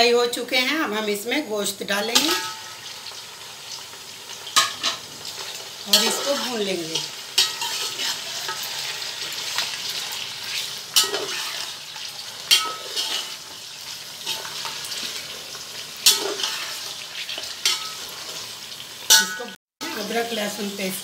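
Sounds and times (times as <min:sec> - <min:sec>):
meat sizzling in hot oil: 0:00.4 - 0:21.0
metal spatula scraping a pot: 0:04.6 - 0:18.5.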